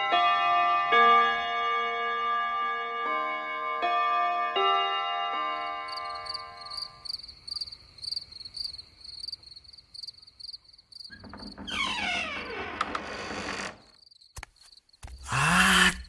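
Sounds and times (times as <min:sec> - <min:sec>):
cricket chirping: 0:05.6 - 0:11.7, 0:13.8 - 0:16.0.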